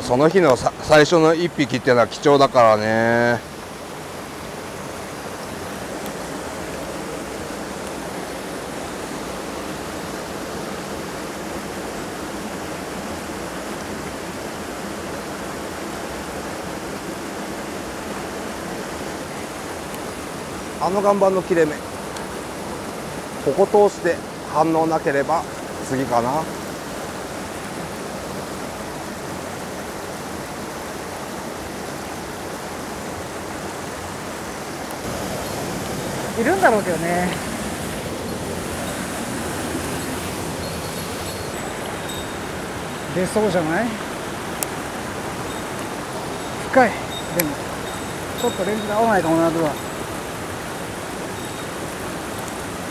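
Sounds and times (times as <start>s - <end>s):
stream rushing over rocks: 0.0s - 52.9s.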